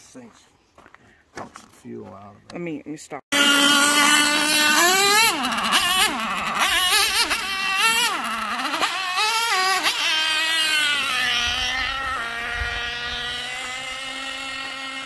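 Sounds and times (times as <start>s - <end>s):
small engine revving: 3.3s - 15.0s.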